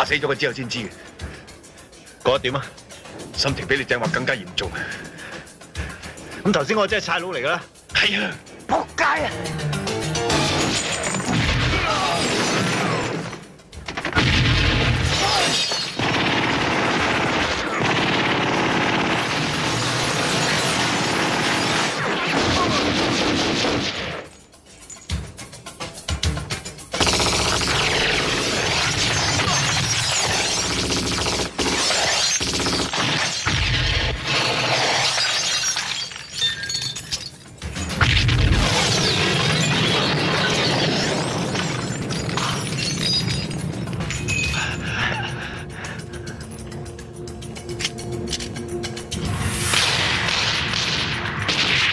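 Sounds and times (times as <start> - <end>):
film music: 0.0 - 34.6, 37.3 - 51.9
glass shattering: 10.4 - 13.4, 14.9 - 16.0, 31.8 - 44.8
glass smashing: 15.0 - 16.0, 33.1 - 44.7
rapid gunfire: 16.0 - 24.3, 26.9 - 35.0.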